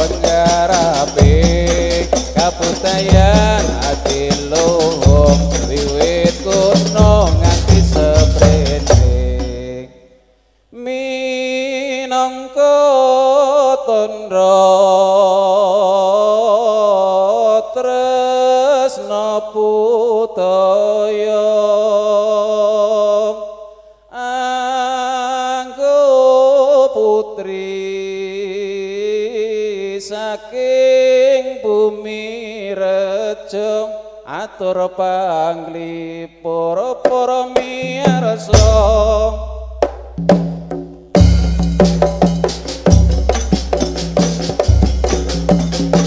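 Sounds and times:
unaccompanied chant-like singing: 0.0s - 9.9s, 24.2s - 39.8s.

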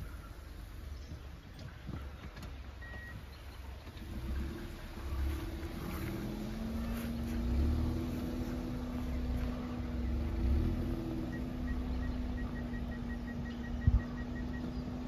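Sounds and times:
car engine humming: 0.0s - 15.0s
parking sensor beeps: 2.3s - 6.1s, 8.6s - 15.0s.

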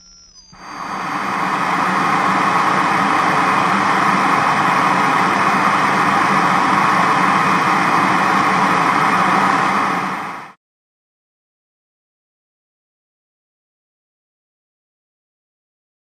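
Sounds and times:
television static hiss: 0.6s - 10.5s.

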